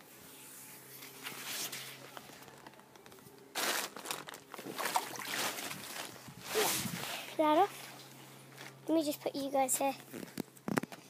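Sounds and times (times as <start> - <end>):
plastic cover rustling and crinkling: 1.0 - 8.8.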